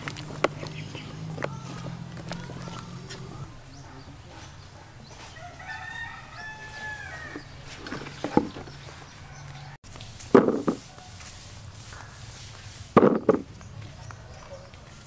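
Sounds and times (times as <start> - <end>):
rooster crowing: 5.3 - 7.5, 9.1 - 9.8
sharp knocks: 10.3 - 10.8, 13.0 - 13.5.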